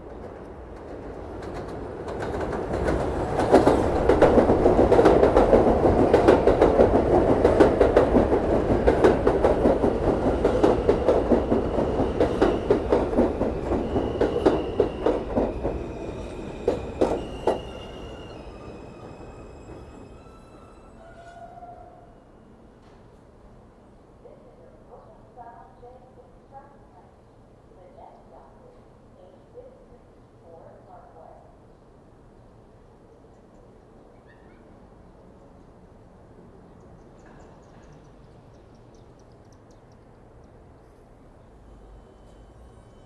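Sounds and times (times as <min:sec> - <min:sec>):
train wheels clacking on rail joints: 0:00.0 - 0:17.8
high squealing tones: 0:15.7 - 0:22.2.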